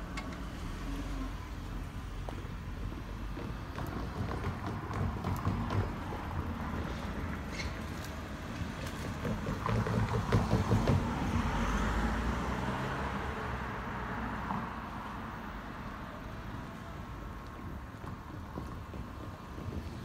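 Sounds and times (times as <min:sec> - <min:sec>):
train rumble: 0:16.1 - 0:20.0.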